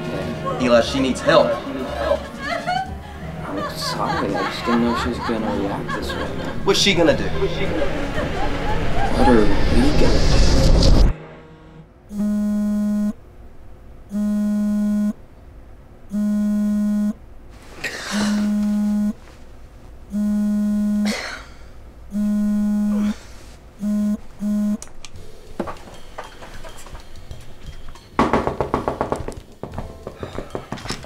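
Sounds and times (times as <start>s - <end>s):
electronic alarm buzzer beeping: 12.1s - 13.2s, 14.1s - 15.2s, 16.1s - 17.2s, 18.2s - 19.2s, 20.1s - 21.2s, 22.1s - 23.1s, 23.8s - 24.8s.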